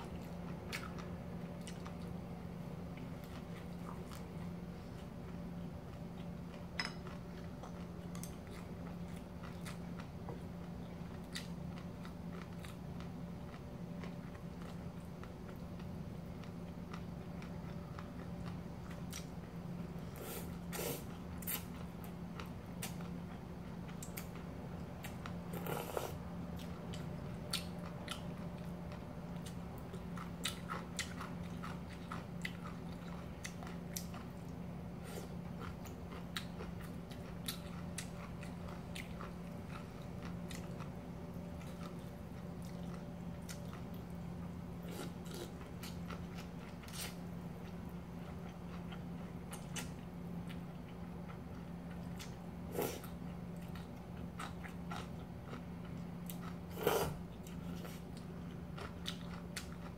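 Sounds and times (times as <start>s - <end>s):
steady low hum: 0.0s - 59.9s
wet chewing: 25.0s - 41.0s, 51.4s - 59.9s.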